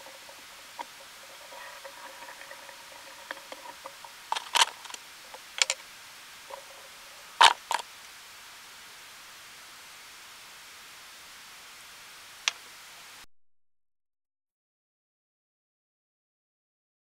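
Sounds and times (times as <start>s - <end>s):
faint steady hum: 0.0s - 13.3s.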